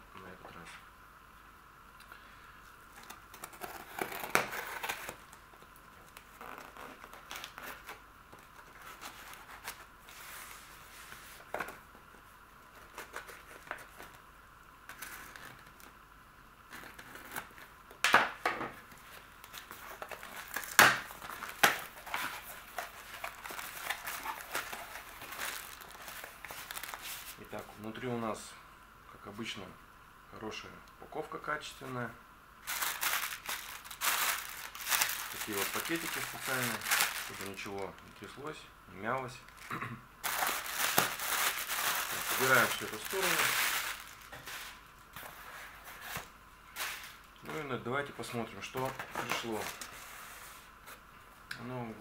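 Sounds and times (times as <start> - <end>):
tape tearing: 3.0 - 5.2, 6.1 - 8.0, 19.5 - 27.4, 32.6 - 37.8, 39.5 - 44.8
plastic air cushions crinkling: 19.5 - 27.4, 32.6 - 38.4, 39.5 - 44.8.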